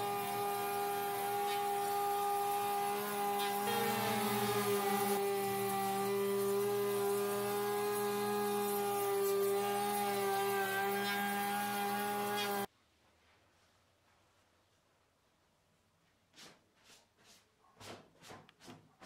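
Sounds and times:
wood router whining: 0:00.0 - 0:12.7.

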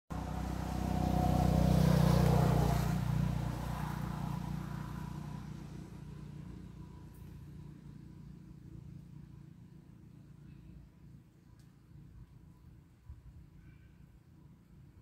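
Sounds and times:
vehicle engine passing by: 0:00.1 - 0:10.6.

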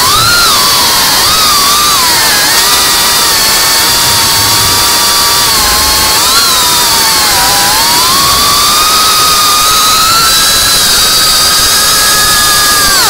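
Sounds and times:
quadcopter motors whining: 0:00.0 - 0:13.0
steady hiss: 0:01.2 - 0:12.9.

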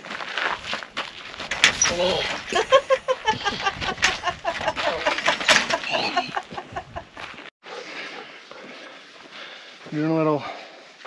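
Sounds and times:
footsteps on dry dirt: 0:00.0 - 0:01.7, 0:06.4 - 0:11.0.

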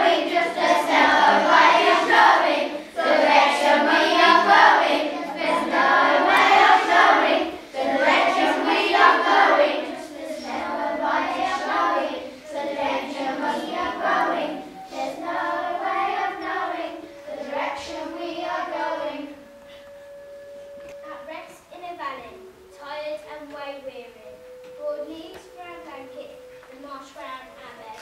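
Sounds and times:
children singing in unison: 0:00.0 - 0:19.7.

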